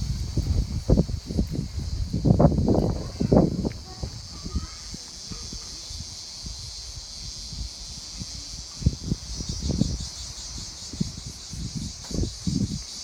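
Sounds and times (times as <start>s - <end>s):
cicadas buzzing: 0.0s - 13.0s.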